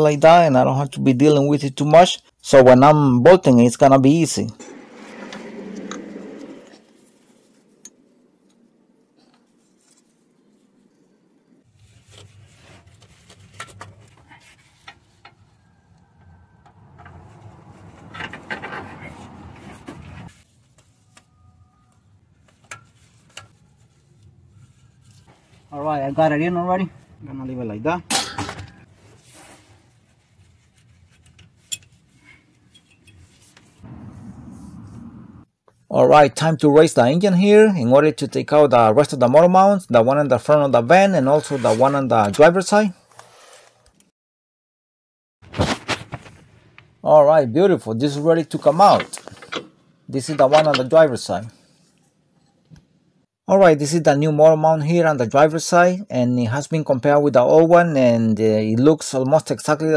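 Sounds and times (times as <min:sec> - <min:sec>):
low rustling: 0:04.5 - 0:11.1, 0:28.8 - 0:35.5
rubbing and rustling: 0:04.6 - 0:11.0, 0:11.6 - 0:15.8, 0:16.8 - 0:21.5, 0:22.4 - 0:27.1, 0:28.8 - 0:35.0.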